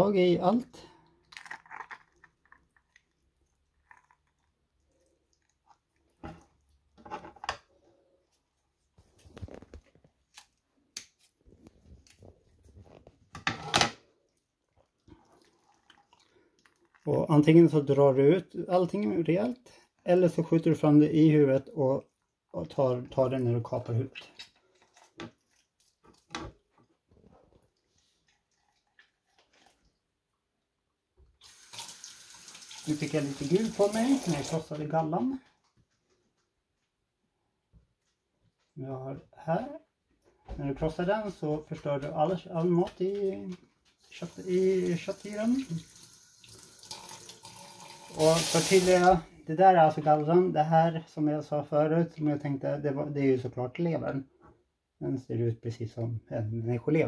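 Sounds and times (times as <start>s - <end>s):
wet squishing and crunching fish: 1.0s - 6.7s
water running into steel sink: 31.4s - 34.7s, 44.2s - 49.2s.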